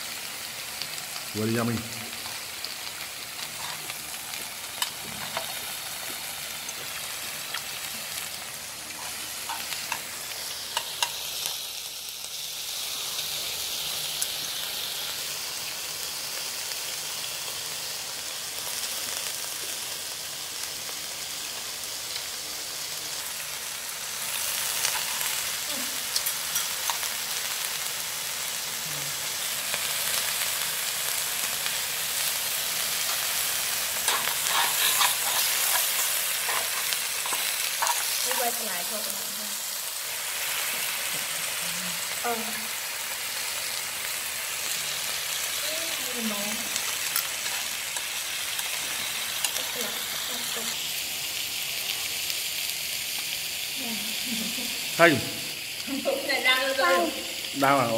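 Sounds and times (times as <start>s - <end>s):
food sizzling on a griddle: 0.0s - 57.9s.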